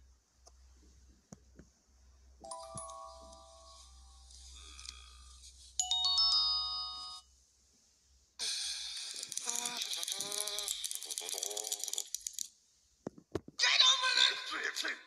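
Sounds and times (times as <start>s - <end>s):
cartoon chime of ringing tones: 2.5s - 3.9s, 5.8s - 7.2s.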